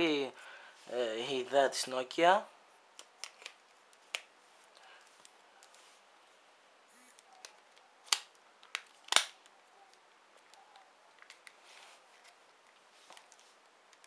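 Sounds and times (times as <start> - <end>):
plastic phone casing clicks: 7.4 - 9.4.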